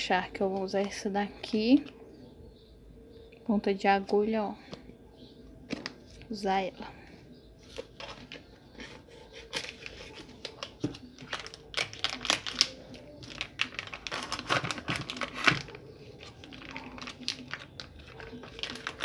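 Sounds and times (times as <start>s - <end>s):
plastic pack crinkling: 9.4s - 19.0s.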